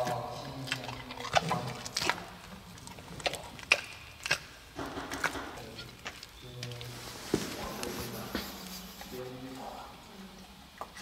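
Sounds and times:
panda chewing crunchy food: 0:00.0 - 0:06.4.

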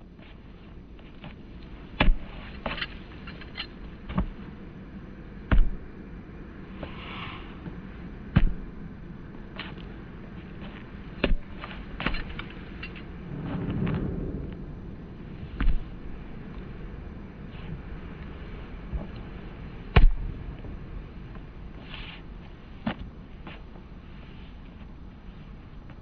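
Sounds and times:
soccer ball thuds: 0:05.5 - 0:05.8, 0:08.3 - 0:08.7, 0:15.6 - 0:15.9
low rumble: 0:12.1 - 0:21.8.

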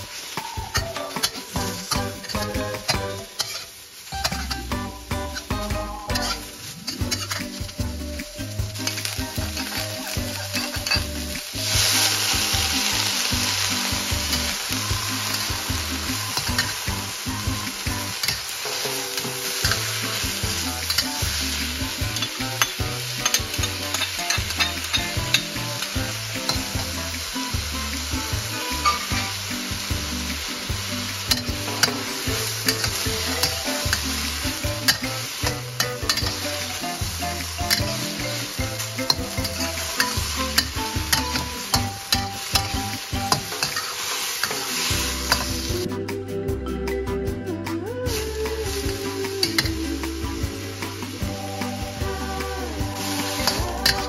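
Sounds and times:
mushrooms sizzling in a wok: 0:00.0 - 0:45.9, 0:48.1 - 0:54.0
metal spatula scraping a wok: 0:00.8 - 0:07.8, 0:08.8 - 0:29.9, 0:30.6 - 0:45.8.

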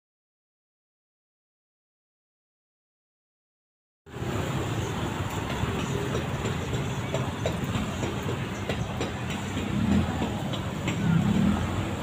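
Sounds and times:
cars driving past: 0:04.1 - 0:12.0.

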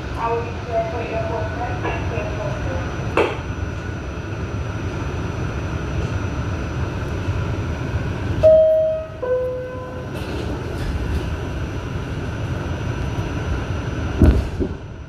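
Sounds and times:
subway train low rumble: 0:00.0 - 0:15.0
two-note door chime: 0:08.4 - 0:10.0.

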